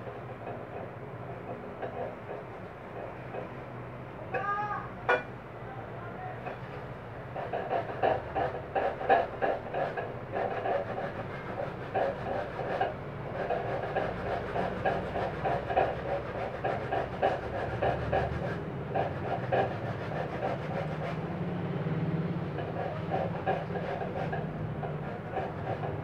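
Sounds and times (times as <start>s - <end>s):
fruit rasping on metal grater: 6.5s - 21.4s, 22.2s - 26.0s.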